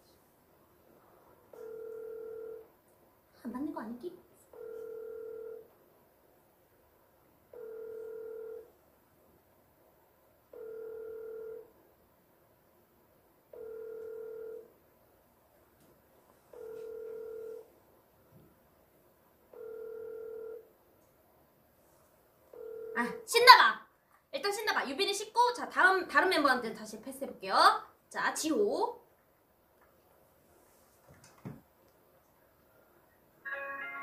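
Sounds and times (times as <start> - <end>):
phone ringback beeps: 1.6 - 2.6, 4.6 - 5.6, 7.6 - 8.7, 10.6 - 11.6, 13.6 - 14.6, 16.6 - 17.7, 19.6 - 20.6.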